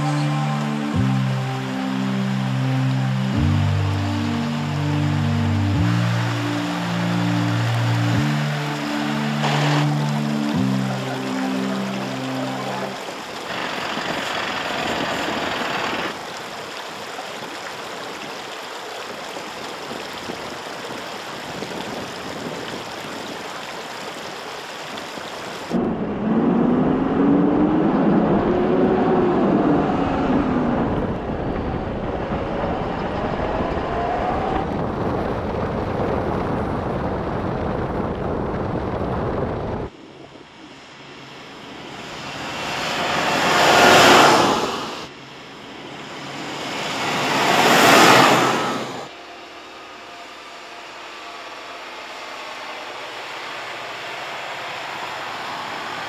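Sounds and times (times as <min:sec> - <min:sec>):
truck engine and tyre rumble: 0:00.0 - 0:56.0
wind noise: 0:13.5 - 0:16.2, 0:19.1 - 0:40.0.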